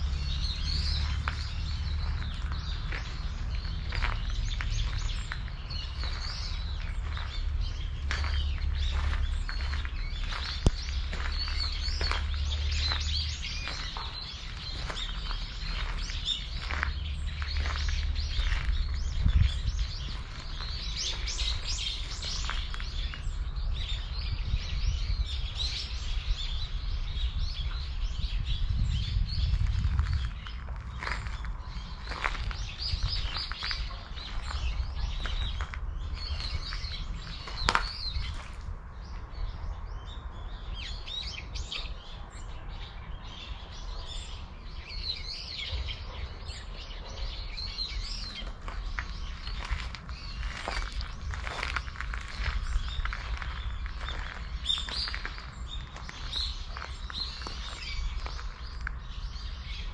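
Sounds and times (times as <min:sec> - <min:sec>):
steady low rumble: 0:00.0 - 0:45.4, 0:47.6 - 0:59.9
small birds chirping: 0:00.0 - 0:59.9.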